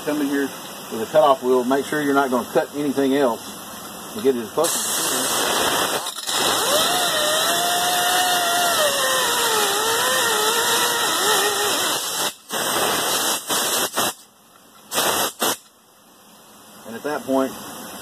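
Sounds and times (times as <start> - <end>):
cutoff wheel cutting metal: 4.7 - 14.2.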